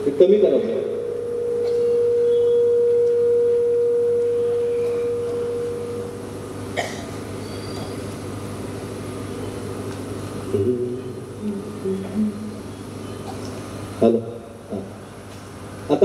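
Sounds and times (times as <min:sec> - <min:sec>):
loud feedback tone: 0:00.0 - 0:08.2
sound system low hum: 0:00.0 - 0:16.0.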